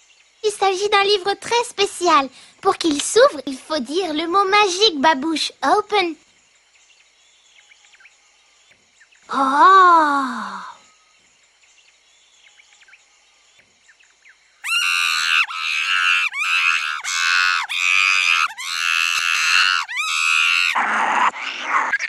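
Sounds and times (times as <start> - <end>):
cartoon monkey shrieking: 14.6 - 22.0.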